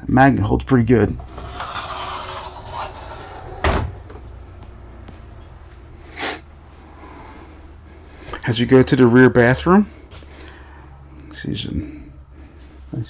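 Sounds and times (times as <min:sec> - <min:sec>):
sliding door rumble: 0:01.2 - 0:04.4.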